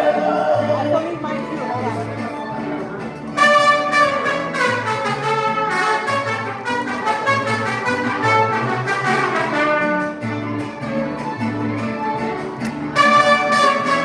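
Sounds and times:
brass band music with trumpets: 3.3s - 10.7s, 12.8s - 14.0s.

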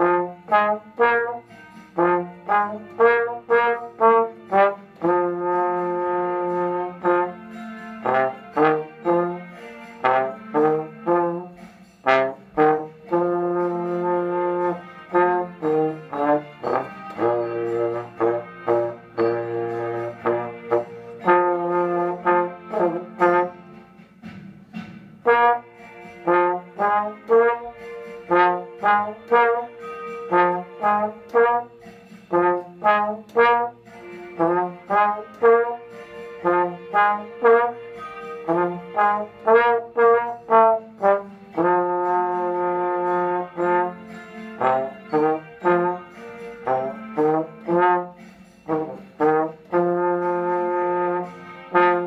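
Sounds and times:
trombone playing: 0.0s - 24.0s, 25.2s - 52.0s.

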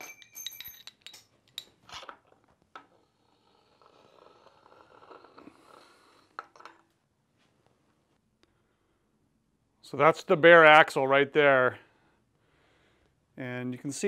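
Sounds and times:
light metal clinks: 0.0s - 1.8s
metal tube scraping slide: 2.9s - 6.8s.

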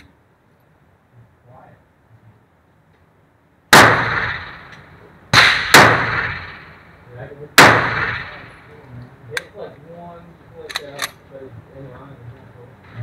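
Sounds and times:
pistol shots echoing indoors: 3.8s - 4.7s, 5.4s - 6.6s, 7.6s - 8.4s.

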